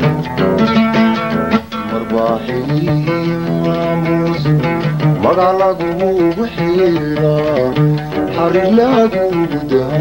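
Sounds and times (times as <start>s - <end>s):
plucked oud: 0.0s - 10.0s
man singing: 1.7s - 10.0s.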